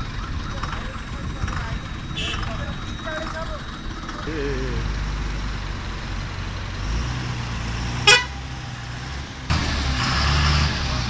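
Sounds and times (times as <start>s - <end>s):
bus engine rumbling: 0.0s - 11.0s
horn toot: 2.2s - 2.6s, 8.0s - 8.4s.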